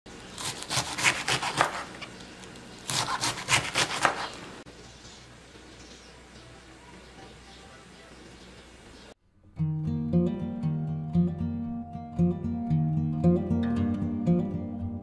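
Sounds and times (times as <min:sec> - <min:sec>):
knife slicing cabbage on board: 0:00.4 - 0:02.1, 0:02.8 - 0:04.4.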